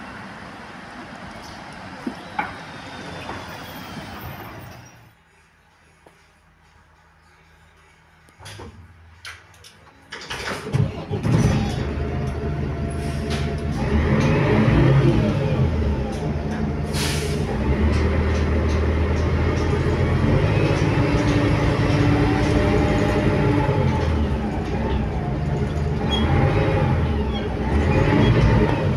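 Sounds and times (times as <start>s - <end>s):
bus engine running: 0.0s - 9.2s, 10.6s - 28.9s
short hiss of air: 16.9s - 17.5s.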